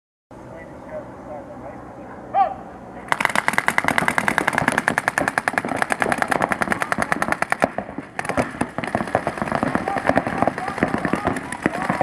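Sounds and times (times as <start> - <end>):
paintball markers firing rapidly: 3.1 - 12.0.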